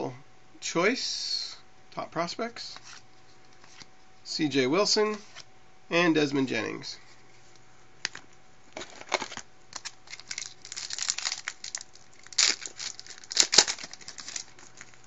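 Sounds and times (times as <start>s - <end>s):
foil wrapper tearing and crinkling: 8.8s - 15.0s.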